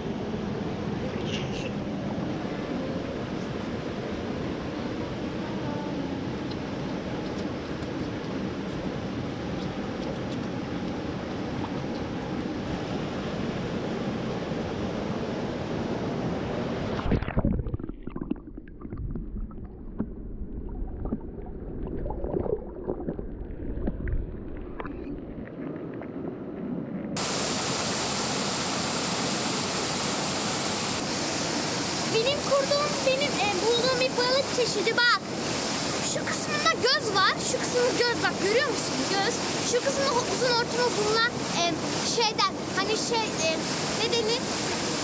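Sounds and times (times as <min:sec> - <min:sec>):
stream water rushing: 0:00.0 - 0:18.2, 0:27.2 - 0:45.0
muffled low rumble: 0:17.0 - 0:27.2.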